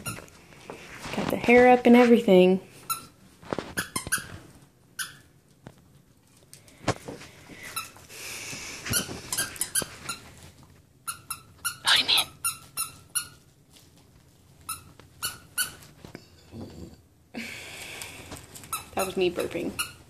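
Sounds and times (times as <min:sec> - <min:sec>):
dog toy squeaking: 0:11.1 - 0:13.4.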